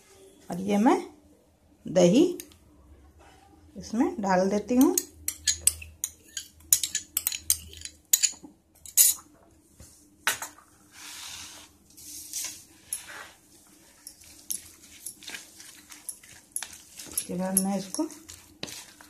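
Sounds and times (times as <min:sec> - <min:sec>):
metal spoon clinking on bowls: 0:04.7 - 0:09.3, 0:14.0 - 0:18.8.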